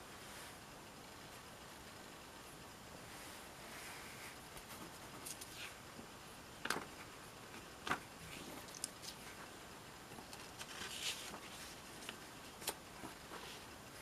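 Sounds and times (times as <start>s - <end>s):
page turning rustle: 4.6s - 5.8s, 6.6s - 9.5s, 10.1s - 13.7s.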